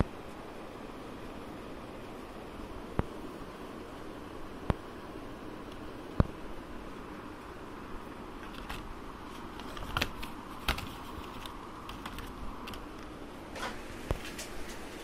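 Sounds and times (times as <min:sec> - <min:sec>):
steady low hiss: 0:00.0 - 0:15.0
plastic packaging clicking and crackling: 0:08.4 - 0:15.0.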